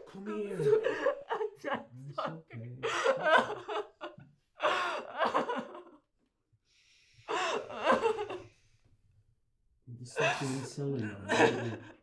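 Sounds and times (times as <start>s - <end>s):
woman sobbing: 0.4s - 6.0s, 7.3s - 8.4s.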